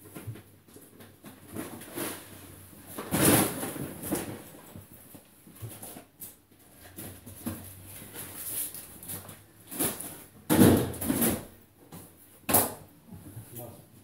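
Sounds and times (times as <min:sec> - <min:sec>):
plastic bags rustling: 0:00.0 - 0:11.6
groceries knocking in crates: 0:09.4 - 0:12.8.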